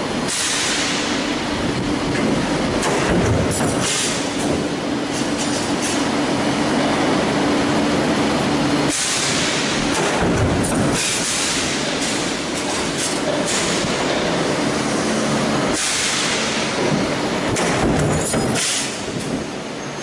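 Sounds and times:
stamping press clatter: 2.1s - 4.6s, 15.8s - 19.4s.

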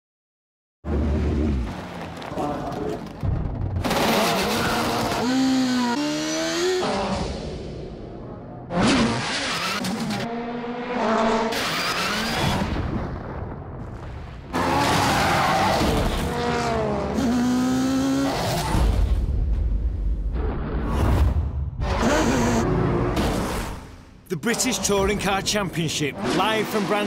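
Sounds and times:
racing car engines revving: 0.9s - 12.7s, 14.6s - 19.1s, 21.8s - 27.0s.

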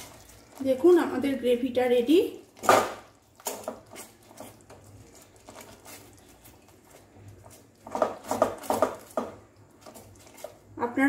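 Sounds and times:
spoon tapping and scraping a pot: 7.3s - 10.6s.

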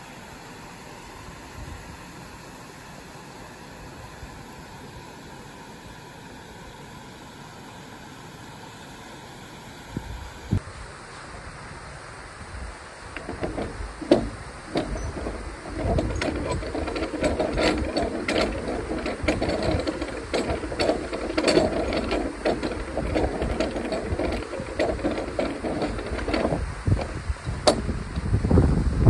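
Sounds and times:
ratchet pawl clicking: 13.2s - 28.2s
iron gearing rattle: 13.2s - 28.4s.

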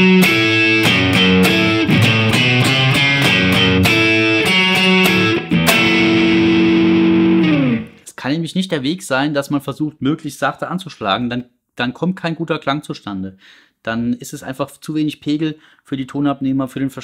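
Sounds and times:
distorted electric guitar riff: 0.0s - 8.0s.

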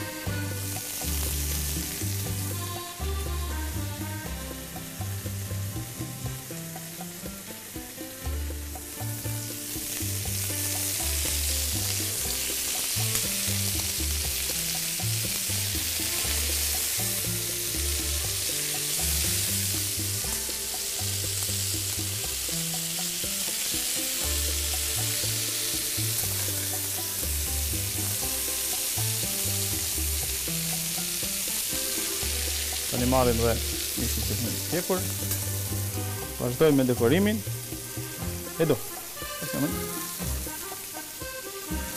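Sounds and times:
background music bass line: 0.0s - 41.9s
food sizzling on a griddle: 0.0s - 41.9s.

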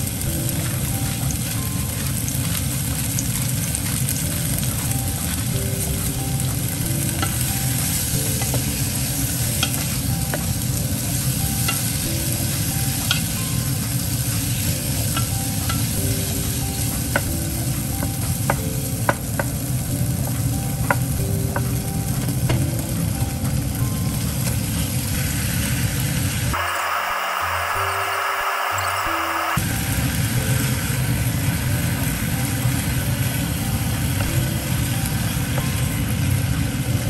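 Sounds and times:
vegetables sizzling in a pan: 0.0s - 37.0s.

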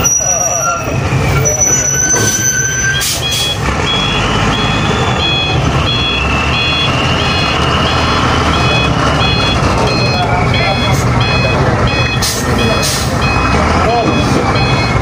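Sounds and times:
truck engine rumble: 0.0s - 15.0s
truck reversing alarm beeping: 0.0s - 15.0s.

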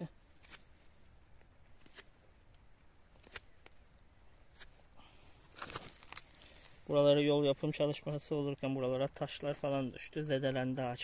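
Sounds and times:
knife scoring bark: 0.4s - 0.7s, 1.7s - 2.2s.

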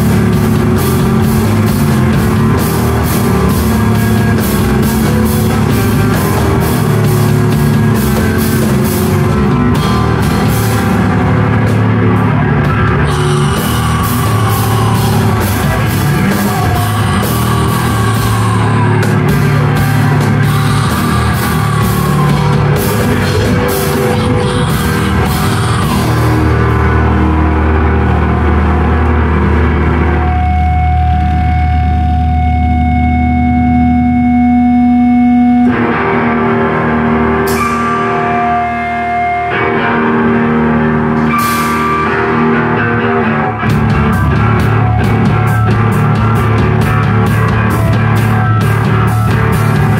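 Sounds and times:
heavy rock band playing: 0.0s - 49.9s
low guitar drone: 0.0s - 49.9s.

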